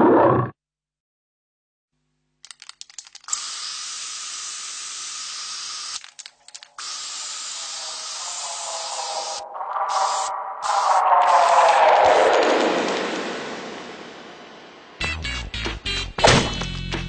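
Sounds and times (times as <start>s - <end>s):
crackling clicks: 2.4s - 3.4s, 6.0s - 6.8s.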